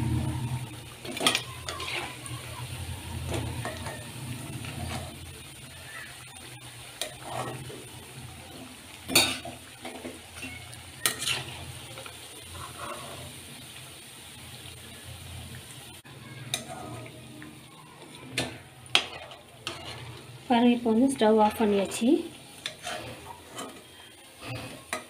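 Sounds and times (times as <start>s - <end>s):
food deep-frying in oil: 0.0s - 25.0s
metal spoon clinking on pan: 1.0s - 2.1s, 9.1s - 11.5s, 18.3s - 20.0s.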